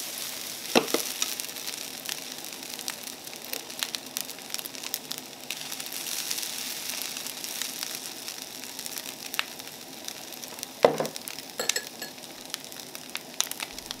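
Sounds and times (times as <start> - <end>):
fried rice sizzling in pan: 0.0 - 14.0
bowl knocking on counter: 10.9 - 11.8.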